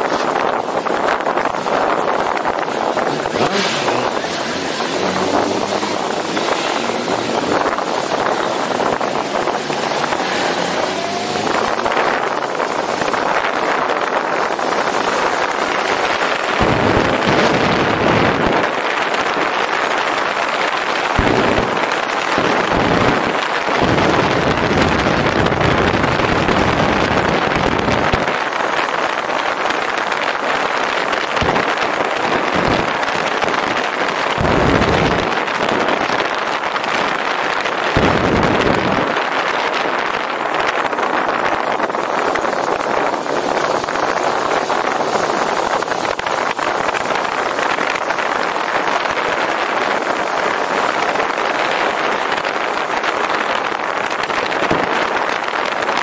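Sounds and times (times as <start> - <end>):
motorcycle engine running: 0.0 - 28.1
wind noise on microphone: 0.0 - 56.0.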